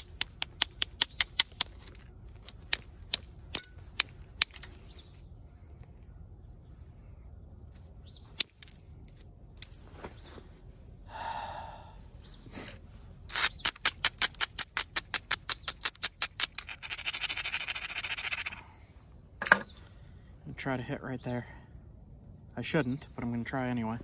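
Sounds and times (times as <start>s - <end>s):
stone clicking on stone: 0.0s - 4.8s, 13.3s - 18.6s
stone scraping and rubbing: 13.3s - 18.6s.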